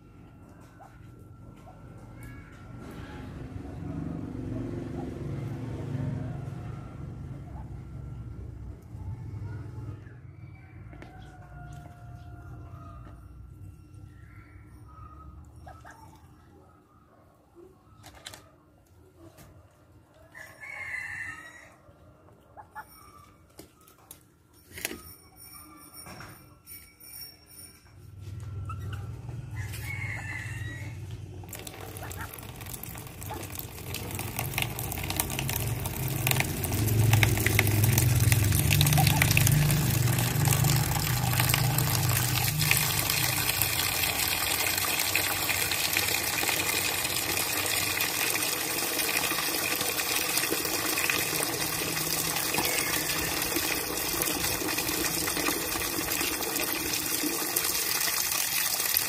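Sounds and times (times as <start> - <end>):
water pouring into plastic basin: 31.4 - 59.0.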